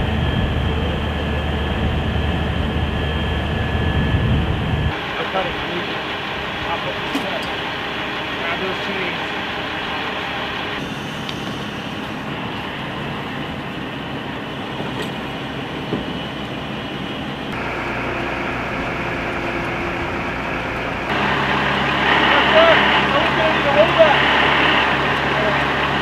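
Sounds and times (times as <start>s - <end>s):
diesel engine humming: 0.0s - 26.0s
noisy wash: 0.0s - 26.0s.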